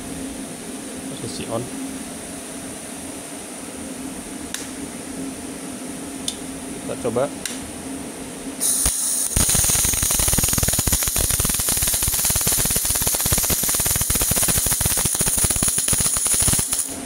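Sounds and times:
welding arc crackling: 8.6 - 17.0.

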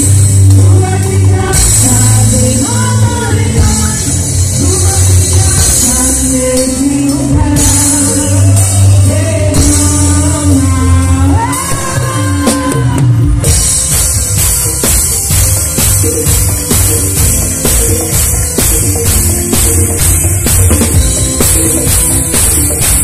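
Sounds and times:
person singing lead vocal: 0.0 - 13.6
live band playing worship song: 0.0 - 23.0.

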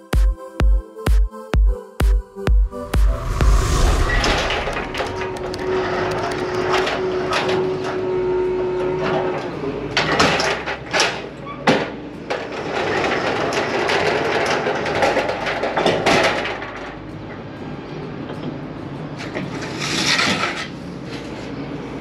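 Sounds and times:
steady tone: 2.2 - 7.2.

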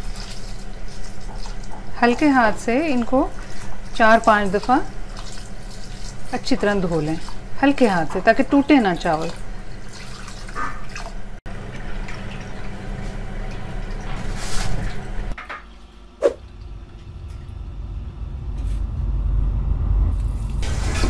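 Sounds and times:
water sloshing and pouring: 0.0 - 15.0.

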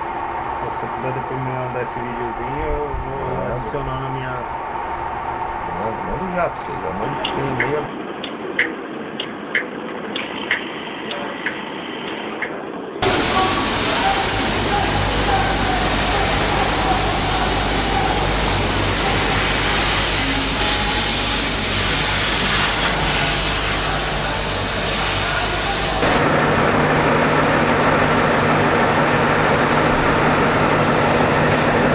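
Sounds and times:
low machinery hum: 0.0 - 8.1, 13.0 - 31.9
machinery hiss: 13.0 - 26.2
packaging machinery running: 13.0 - 31.9.

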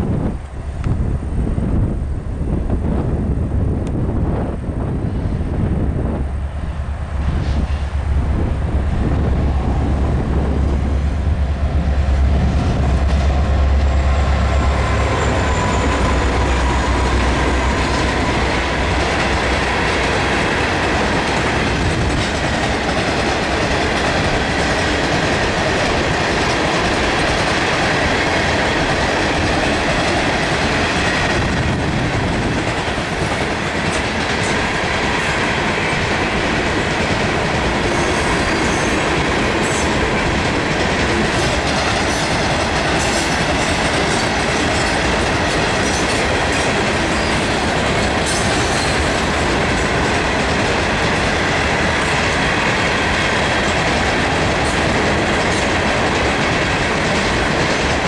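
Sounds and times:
locomotive engine rumble: 0.0 - 35.0
train wheels clattering on rails: 6.6 - 58.0.

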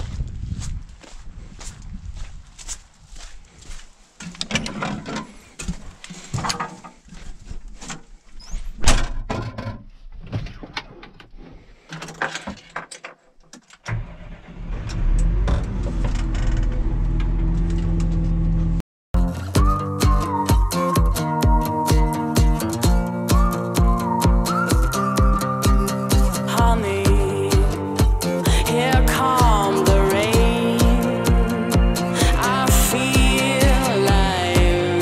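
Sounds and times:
diesel tractor engine running: 13.9 - 18.8.

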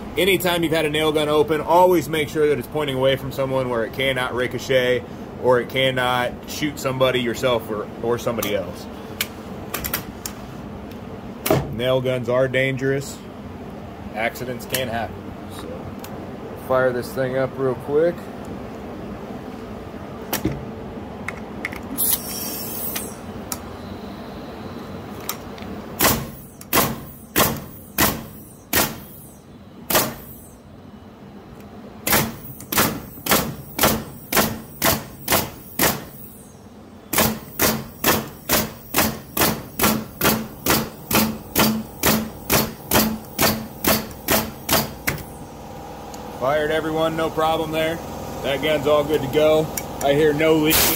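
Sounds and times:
pneumatic nailer shots: 11.4 - 11.7, 21.9 - 23.3, 26.0 - 30.6, 32.0 - 45.5, 50.6 - 50.9
air hiss: 22.0 - 23.3, 50.6 - 50.9.

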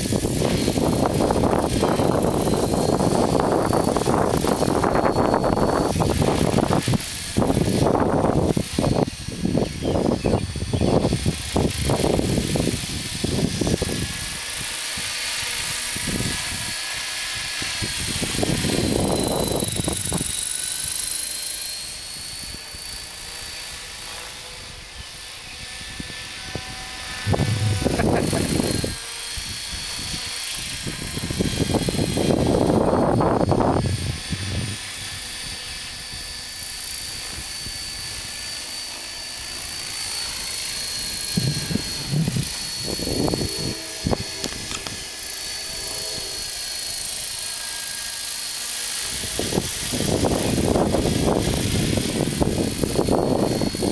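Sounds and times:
wind buffeting microphone: 0.0 - 16.8, 17.4 - 20.4, 25.6 - 36.2, 40.3 - 45.1, 49.0 - 53.9
model helicopter whining: 0.0 - 53.9.

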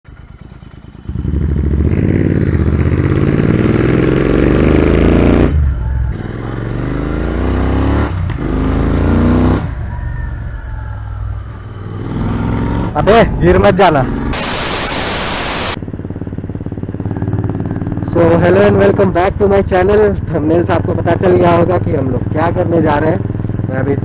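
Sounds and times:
motorcycle engine accelerating: 0.1 - 10.0, 11.6 - 19.0.

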